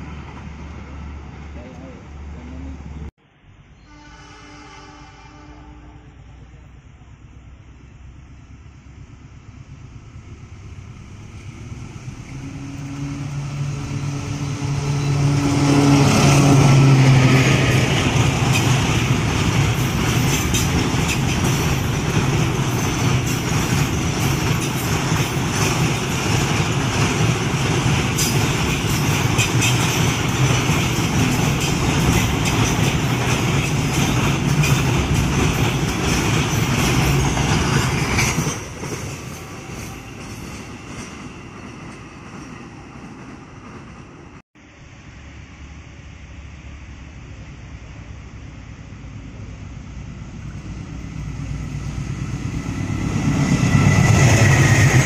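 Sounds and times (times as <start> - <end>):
train wheels clacking on rails: 12.3 - 44.0, 51.4 - 55.0.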